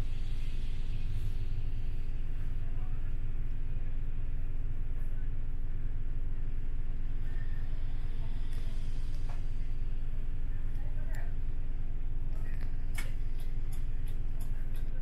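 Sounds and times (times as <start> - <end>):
bus diesel engine idling: 0.0 - 15.0.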